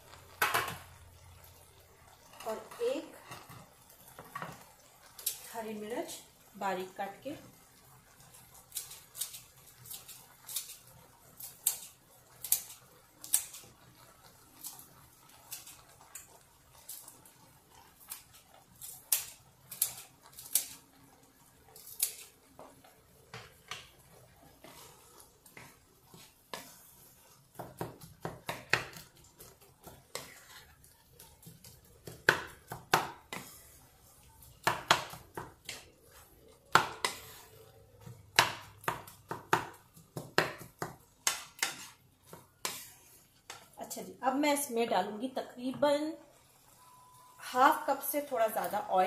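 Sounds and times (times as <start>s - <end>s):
wooden spatula scraping frying pan: 2.2s - 5.6s, 21.6s - 38.2s, 40.0s - 44.1s.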